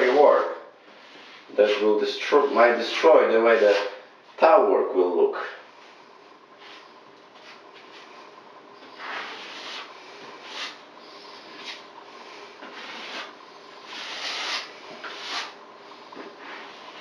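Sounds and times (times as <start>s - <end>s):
brush swishing and scraping: 0.0s - 4.0s, 6.6s - 17.0s.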